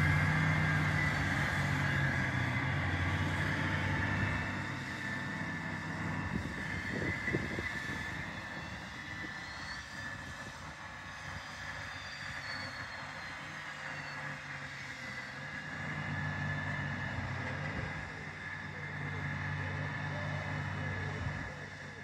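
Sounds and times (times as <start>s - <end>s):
high engine whine: 0.0s - 22.0s
tractor diesel engine droning: 0.0s - 22.0s.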